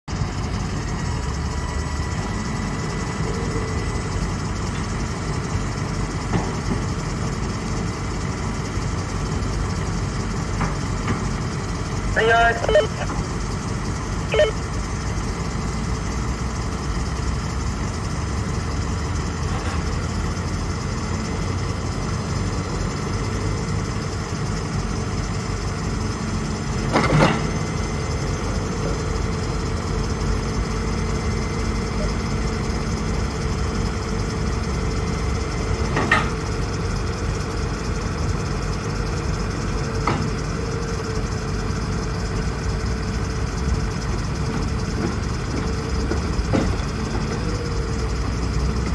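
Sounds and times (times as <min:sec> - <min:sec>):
diesel engine idling: 0:00.1 - 0:48.9.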